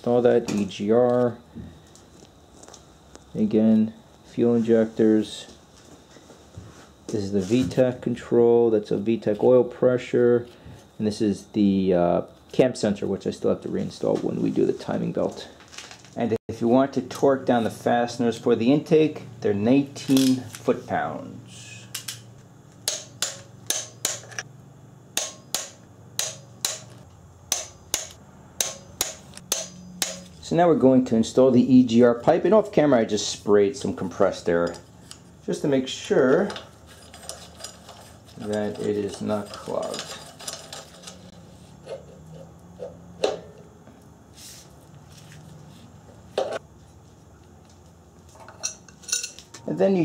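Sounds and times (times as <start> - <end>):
wrench and metal fittings clinking: 36.3 - 41.3, 48.4 - 49.4.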